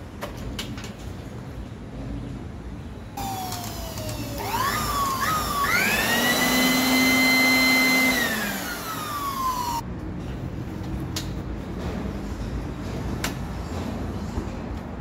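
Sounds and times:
blower-vacuum motor whining: 0:03.2 - 0:09.8.

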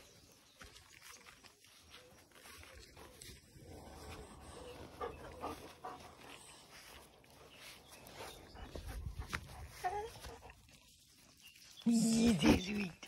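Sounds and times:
puppies making quiet vocal sounds: 0:00.6 - 0:13.0.

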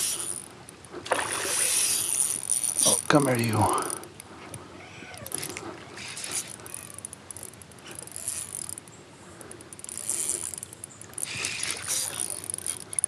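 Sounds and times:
fishing reel clicking rapidly: 0:00.0 - 0:00.5, 0:01.5 - 0:04.2, 0:05.3 - 0:08.9, 0:09.5 - 0:13.0.

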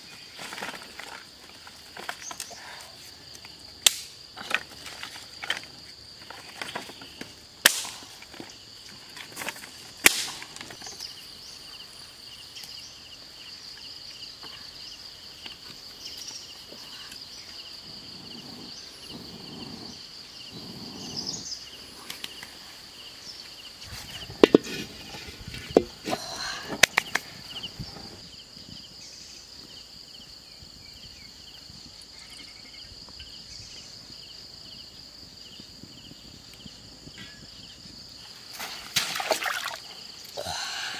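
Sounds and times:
insects droning: 0:00.0 - 0:40.9
dry sticks snapping: 0:03.8 - 0:04.6, 0:07.6 - 0:08.2, 0:09.4 - 0:10.9.

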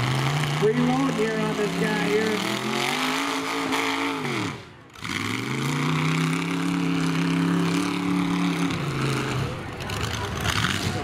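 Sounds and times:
truck engine revving: 0:00.0 - 0:11.0.

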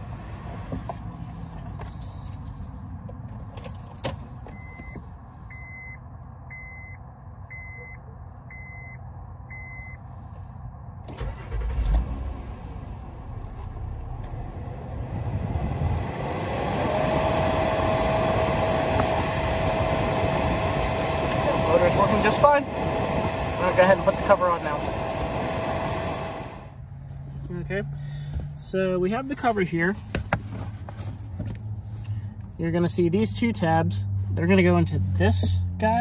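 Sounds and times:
blower motor whine and air rush: 0:11.1 - 0:26.8.

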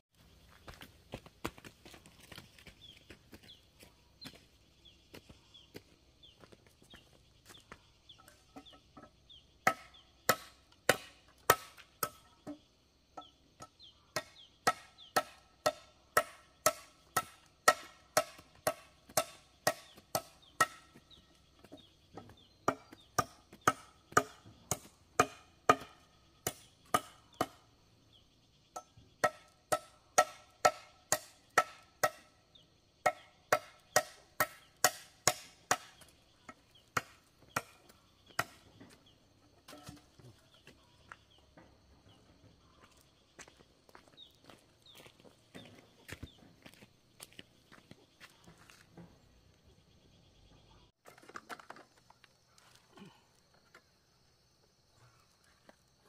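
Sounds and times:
blade chopping bamboo: 0:09.7 - 0:12.2, 0:22.7 - 0:27.6.

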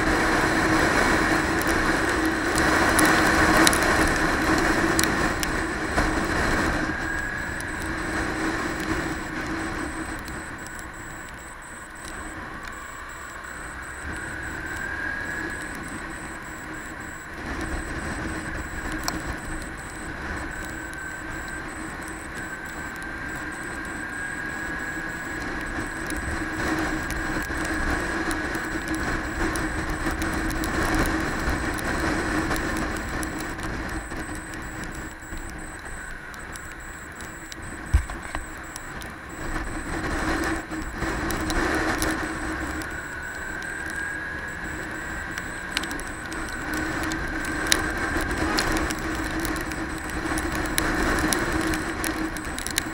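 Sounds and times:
wind rumbling on microphone: 0:00.0 - 0:52.9.

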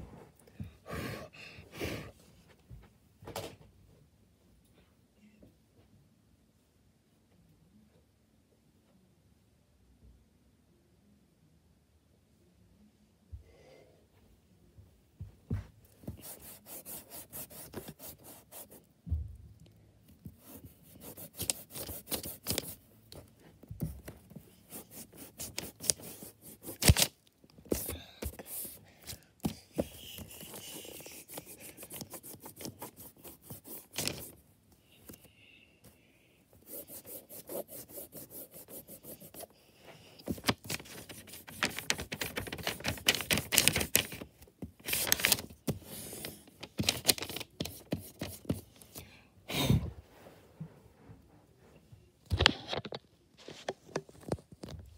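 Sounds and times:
eraser scrubbing on paper: 0:16.2 - 0:18.8, 0:36.6 - 0:39.5.

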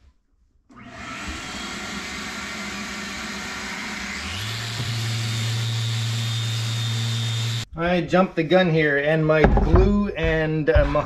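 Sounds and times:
random orbital sander running: 0:01.2 - 0:07.7.

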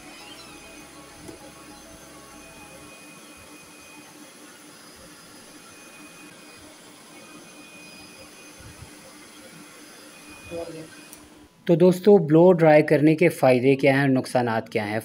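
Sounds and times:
hair dryer blowing: 0:03.6 - 0:11.3.

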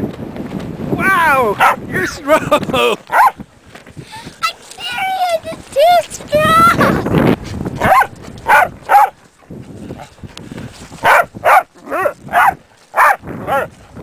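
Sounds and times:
wind buffeting microphone: 0:00.0 - 0:14.0
dog barking: 0:01.6 - 0:01.8, 0:03.1 - 0:03.4, 0:07.8 - 0:09.2, 0:11.0 - 0:13.7.

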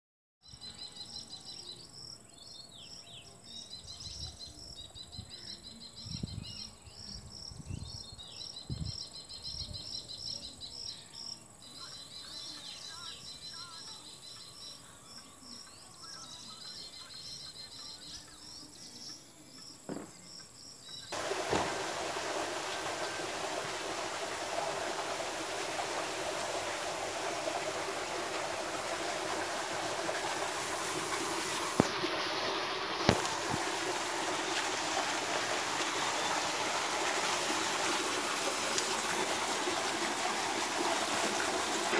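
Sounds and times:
insects chirping: 0:06.6 - 0:40.2
rushing stream water: 0:21.1 - 0:41.9.

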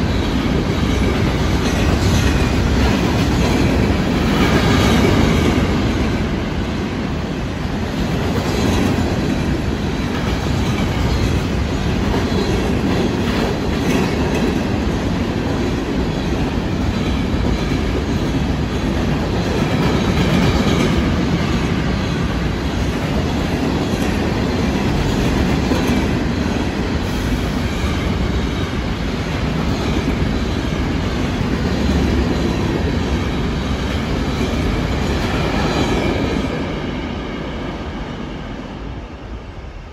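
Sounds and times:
freight train wheels rattling on rail: 0:00.0 - 0:39.9.

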